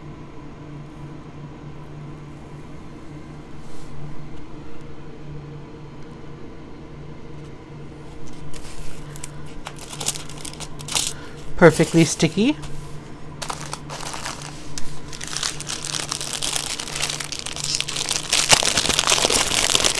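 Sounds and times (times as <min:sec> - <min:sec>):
background hum: 0:00.0 - 0:19.9
plastic film crinkling: 0:08.3 - 0:12.7, 0:13.4 - 0:19.9.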